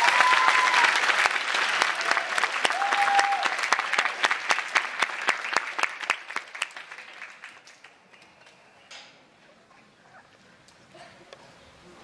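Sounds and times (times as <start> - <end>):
audience applause: 0.0 - 8.5.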